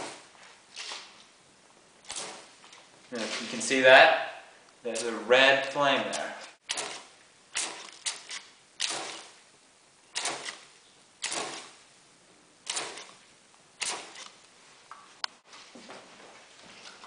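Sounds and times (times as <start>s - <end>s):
spray bottle spritzing: 2.0s - 2.6s, 6.1s - 9.4s, 10.2s - 11.8s, 12.6s - 13.2s, 13.8s - 14.4s.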